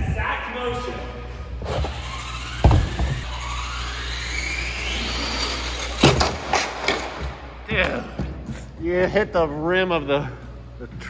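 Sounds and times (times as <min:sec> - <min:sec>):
toy truck motor whine: 0:01.6 - 0:06.3
thump: 0:02.6 - 0:03.3.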